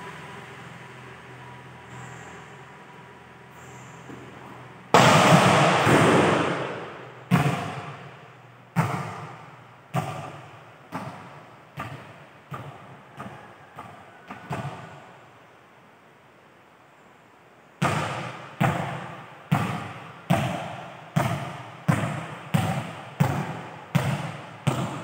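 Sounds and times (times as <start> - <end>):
ball bouncing on hard floor: 4.0 - 8.1, 8.8 - 14.9, 17.8 - 25.0
volleyball hit with a smack: 5.0 - 8.2, 8.8 - 14.9, 17.8 - 25.0.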